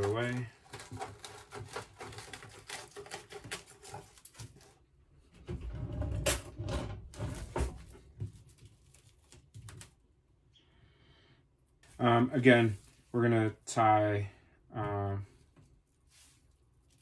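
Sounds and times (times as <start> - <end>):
cling film crinkling: 0.0 - 4.8, 8.3 - 10.0.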